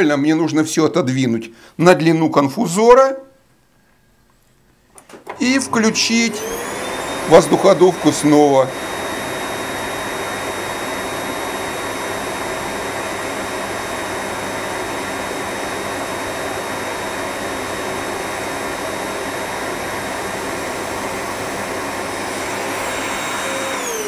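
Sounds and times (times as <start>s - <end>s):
air blower rushing: 5.2s - 24.0s.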